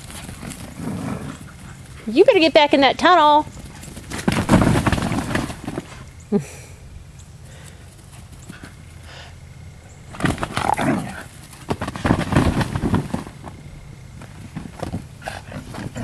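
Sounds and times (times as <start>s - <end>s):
dogs growling: 0.0s - 2.1s, 10.1s - 11.6s, 14.9s - 16.0s
dogs scuffling: 0.0s - 6.2s, 10.0s - 16.0s.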